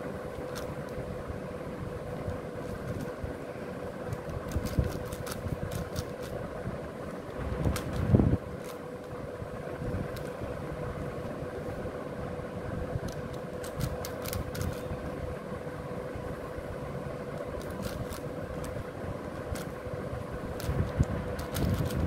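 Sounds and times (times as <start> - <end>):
background hum: 0.0 - 22.0
faint constant tone: 0.0 - 22.0
puzzle cube layers clicking: 4.1 - 6.4, 13.1 - 14.8, 17.5 - 18.8, 20.6 - 22.0.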